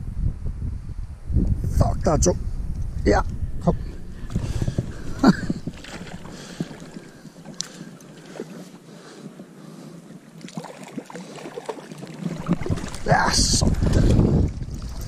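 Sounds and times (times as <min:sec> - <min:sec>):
wind: 0:00.0 - 0:15.0
water: 0:02.2 - 0:15.0.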